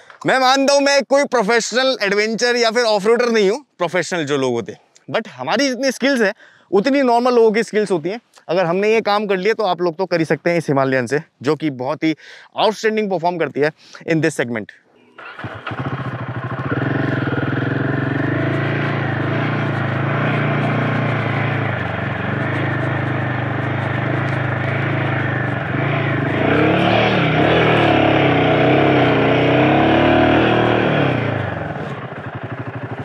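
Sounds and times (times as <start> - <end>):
motorcycle engine revving: 15.2 - 33.0.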